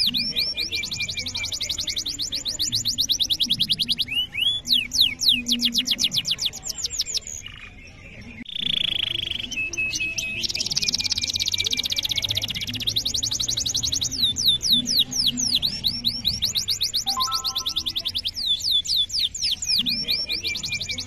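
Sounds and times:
canary singing: 8.5 - 21.0.

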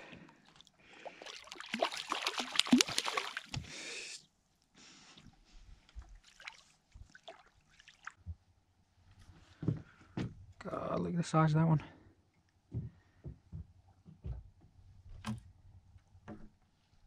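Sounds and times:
fish splashing in water: 1.0 - 3.7.

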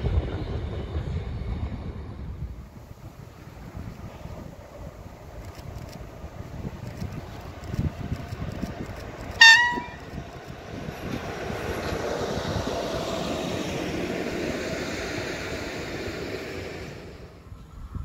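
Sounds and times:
train wheels rumbling on rails: 0.0 - 18.0
locomotive horn toot: 9.4 - 10.2.

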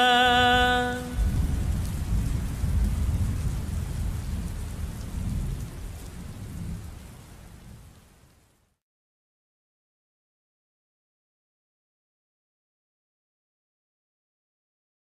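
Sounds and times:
steady rain: 0.0 - 8.8
deep thunder rumble: 0.4 - 7.9.

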